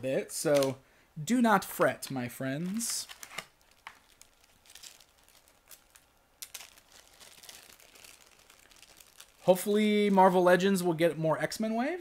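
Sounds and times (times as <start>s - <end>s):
plastic and cardboard packaging rustling: 1.7s - 10.4s.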